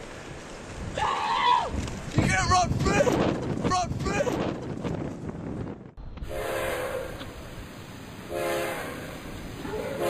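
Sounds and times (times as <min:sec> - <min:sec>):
train horn blasts: 0:06.2 - 0:07.3, 0:08.3 - 0:09.3.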